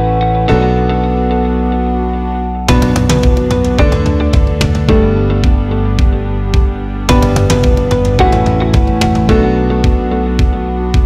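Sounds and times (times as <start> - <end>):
sustained instrumental notes: 2.7 - 9.7
music beat: 2.7 - 11.0.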